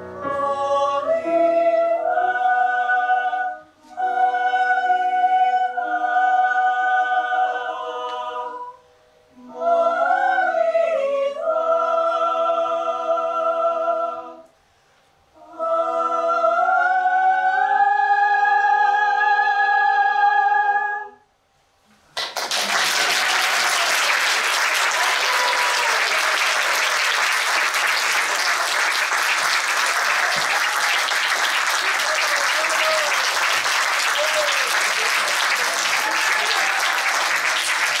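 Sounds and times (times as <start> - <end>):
opera singers holding chord: 0.0 - 14.5, 15.3 - 21.2
audience applause: 22.2 - 38.0.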